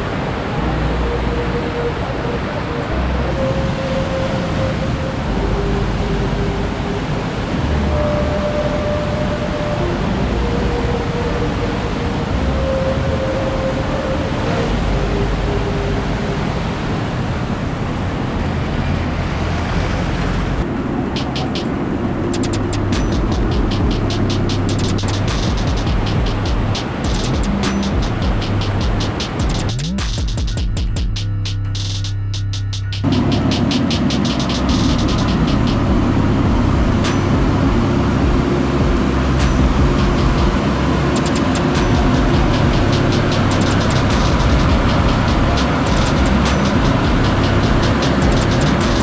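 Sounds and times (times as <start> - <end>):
river rushing: 0.0 - 30.0, 33.0 - 49.0.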